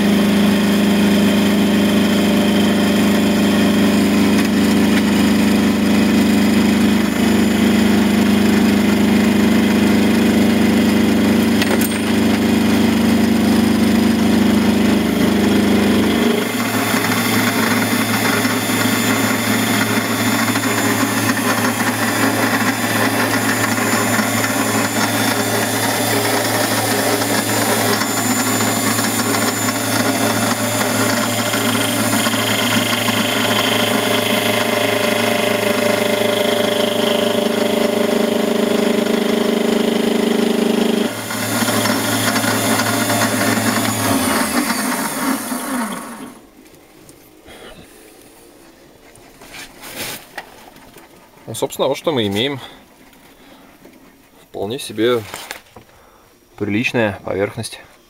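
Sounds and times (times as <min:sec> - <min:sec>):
lathe milling cutter cutting: 0:00.1 - 0:46.4.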